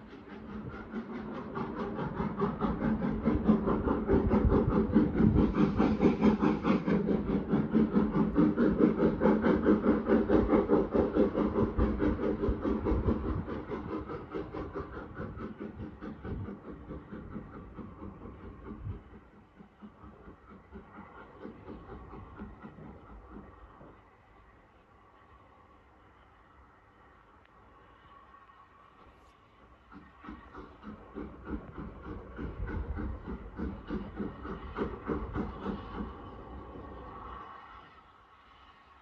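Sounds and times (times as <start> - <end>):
steam locomotive chuffing: 0.0 - 39.0.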